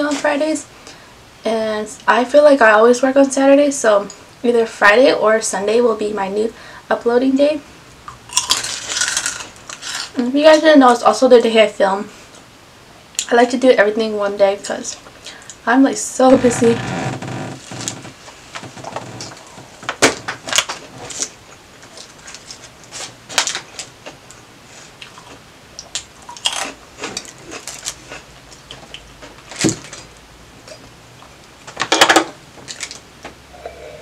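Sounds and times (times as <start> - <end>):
chewing sandwich: 8.1 - 10.1, 20.6 - 31.4
crunching chips: 8.3 - 10.1, 25.0 - 30.1
crinkling: 16.3 - 24.3.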